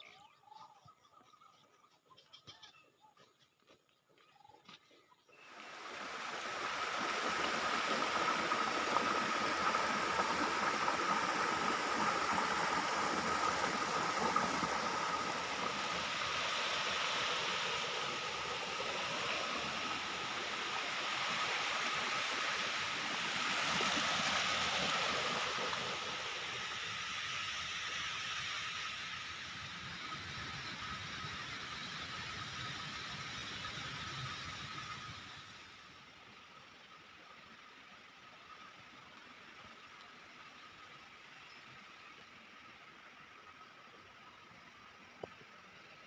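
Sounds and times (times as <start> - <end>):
stream splashing over rocks: 5.5 - 26.6.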